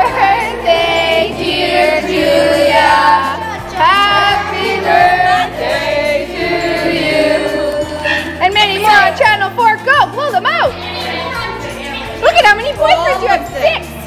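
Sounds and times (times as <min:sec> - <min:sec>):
children singing in unison: 0:00.0 - 0:08.4.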